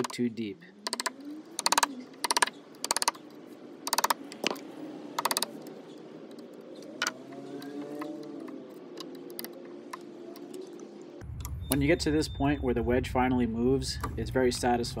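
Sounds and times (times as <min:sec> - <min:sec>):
chisel clicking and scraping wood: 0:00.8 - 0:04.6, 0:05.2 - 0:05.7.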